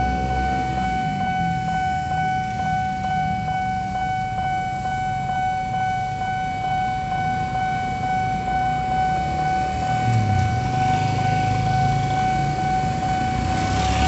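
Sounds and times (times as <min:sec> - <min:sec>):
level crossing alarm tone: 0:00.0 - 0:14.0
motorcycle engines running: 0:09.2 - 0:14.0.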